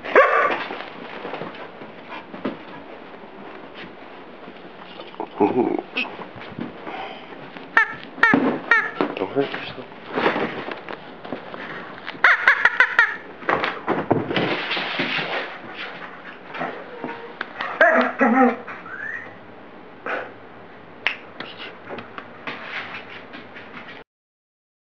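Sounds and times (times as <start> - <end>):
dog whining and grumbling: 16.6 - 19.4.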